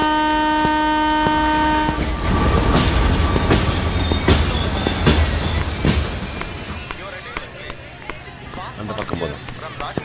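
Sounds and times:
train low rumble: 0.0 - 9.7
train wheel clack: 0.5 - 9.2
high wheel squeal: 1.5 - 9.0.

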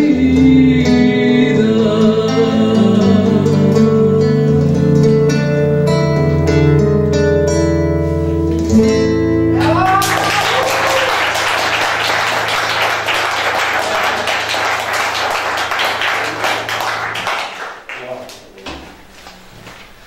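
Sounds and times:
acoustic guitar chord ringing: 0.0 - 17.5
audience cheering: 9.6 - 17.9
audience applauding: 9.6 - 18.4.

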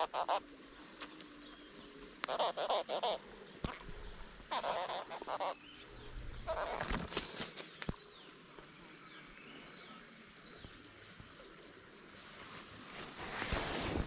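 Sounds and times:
insect drone: 0.0 - 14.0
short falling bird calls: 3.9 - 7.9.

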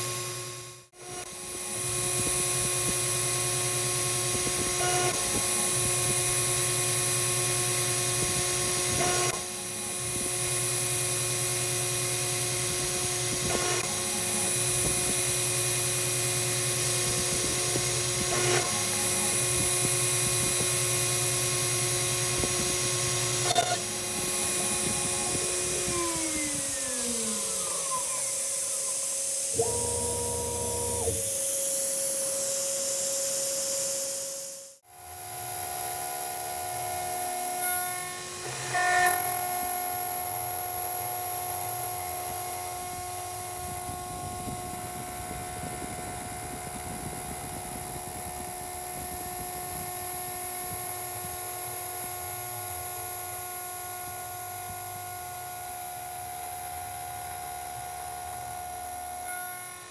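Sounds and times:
cnc router spindle whine: 0.0 - 59.9
short hum: 16.8 - 31.5.

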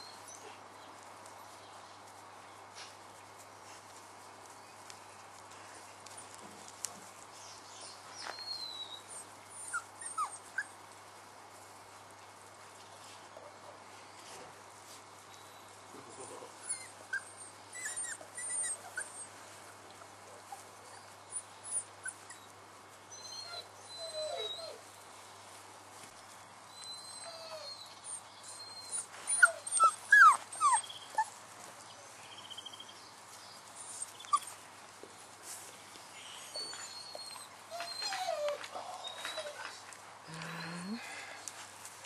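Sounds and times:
puppies whimpering and squeaking: 8.3 - 10.8, 16.0 - 19.6, 20.5 - 24.9, 26.7 - 31.4, 33.7 - 34.6, 36.4 - 39.8.

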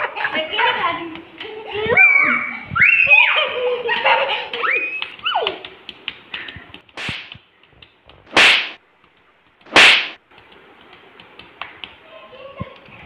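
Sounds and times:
whip-crack smacks: 5.0 - 7.5, 8.3 - 8.8, 9.6 - 10.2.

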